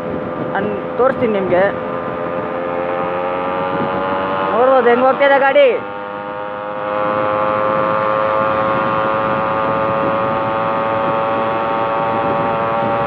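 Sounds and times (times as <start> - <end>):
motorcycle engine buzzing: 0.0 - 13.0
wind rush: 0.0 - 13.0.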